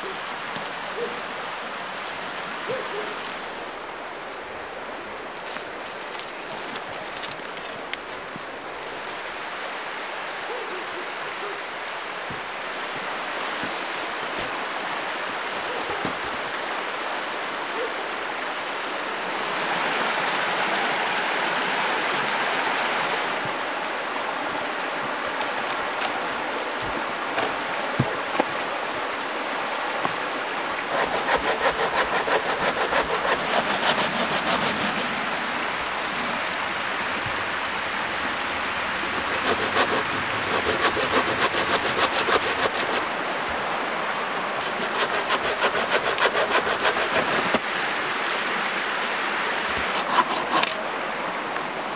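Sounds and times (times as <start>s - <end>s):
river rushing over stones: 0.0s - 10.4s, 11.2s - 51.9s
hand saw cutting log: 30.9s - 35.5s, 39.0s - 43.2s, 44.6s - 47.6s, 49.8s - 50.8s.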